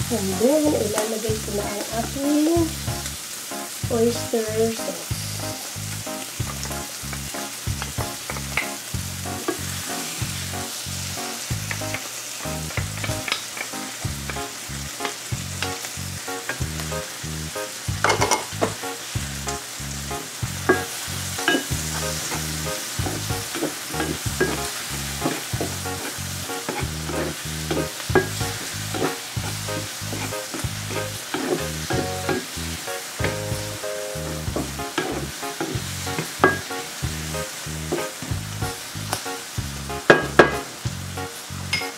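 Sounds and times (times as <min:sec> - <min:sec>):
vegetables sizzling in a frying pan: 0:00.0 - 0:41.9
wooden spatula scraping a pan: 0:20.6 - 0:32.6, 0:34.3 - 0:36.7, 0:37.9 - 0:38.3.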